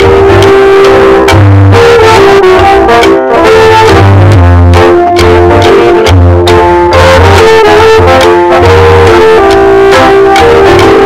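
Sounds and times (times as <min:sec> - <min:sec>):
brassy melody with bass and beat: 0:00.0 - 0:11.0.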